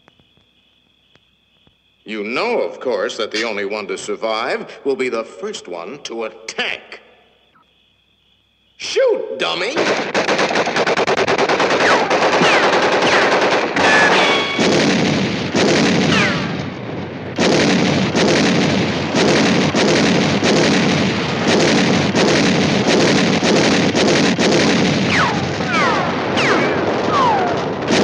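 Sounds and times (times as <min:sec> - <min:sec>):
machine-gun fire: 0:09.7 - 0:28.0
falling whistles: 0:25.1 - 0:27.8.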